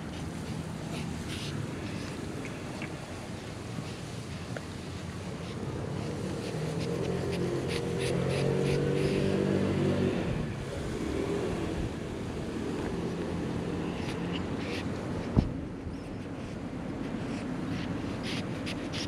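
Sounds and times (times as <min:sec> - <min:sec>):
vehicle driving past: 0:05.7 - 0:14.7.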